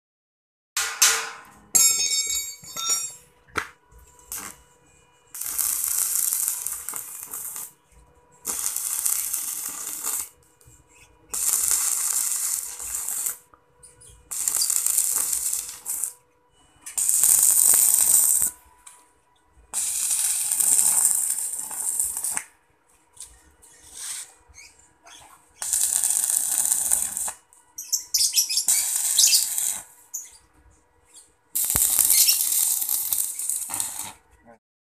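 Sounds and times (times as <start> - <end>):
welding arc crackling: 3.6 - 4.6, 5.3 - 7.8, 8.4 - 13.5, 14.1 - 16.2, 16.9 - 18.6, 19.7 - 22.5, 25.1 - 30.4, 31.5 - 34.3.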